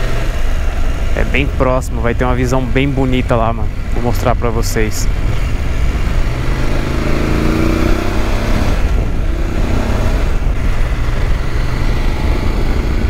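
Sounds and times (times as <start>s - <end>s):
motorcycle engine running: 0.0s - 13.0s
wind noise over microphone: 5.0s - 13.0s.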